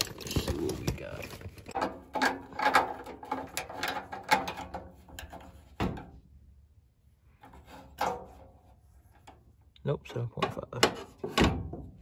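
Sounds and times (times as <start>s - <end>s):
tools clicking and knocking: 0.0s - 5.6s.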